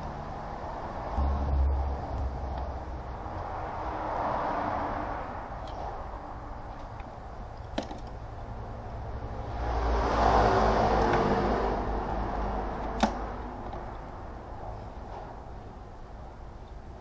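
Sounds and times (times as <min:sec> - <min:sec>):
low rumble: 0:00.0 - 0:07.6
steady low hum: 0:00.0 - 0:17.0.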